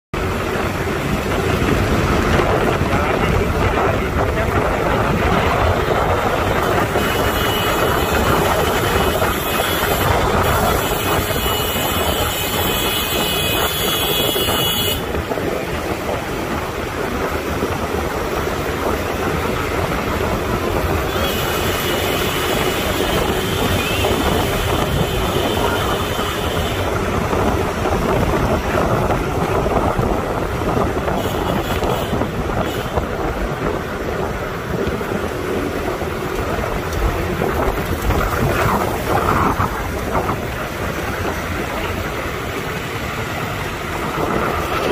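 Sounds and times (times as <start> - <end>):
tyres on road: 0.1 - 44.9
vehicle engine rumble: 0.1 - 44.9
wind noise: 0.1 - 44.9.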